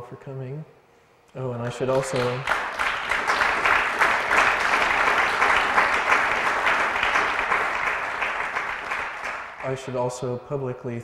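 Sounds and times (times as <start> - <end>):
audience applauding: 1.8 - 10.0.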